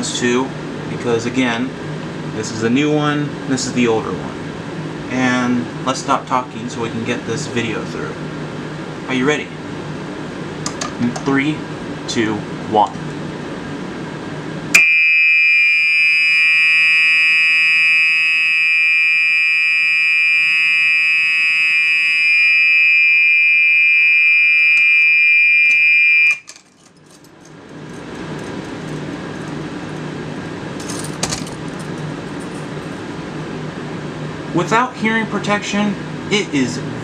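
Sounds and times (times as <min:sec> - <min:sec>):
fan humming: 0:00.0 - 0:14.9, 0:16.0 - 0:37.0
fire alarm horn steady tone: 0:14.7 - 0:26.5
keys jingling: 0:26.4 - 0:33.0.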